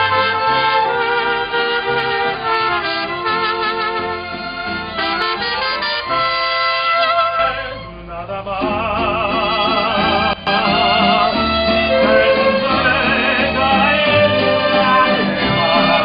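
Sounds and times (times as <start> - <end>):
mariachi band playing: 0.0 - 16.0
person singing: 7.0 - 16.0.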